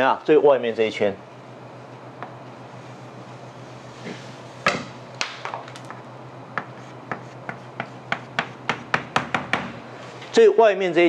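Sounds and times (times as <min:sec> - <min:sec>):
chalk tapping and scraping on blackboard: 0:06.5 - 0:09.6.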